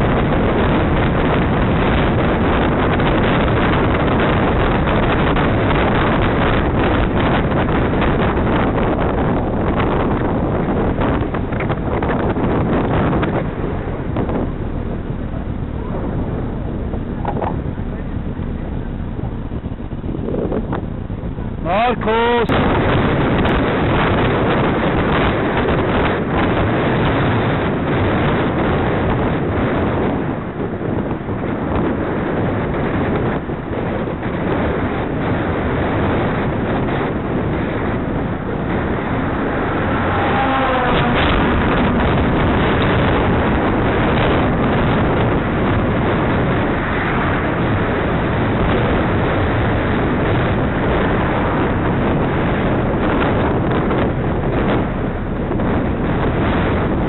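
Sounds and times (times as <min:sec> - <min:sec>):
wind buffeting microphone: 0:00.0 - 0:57.0.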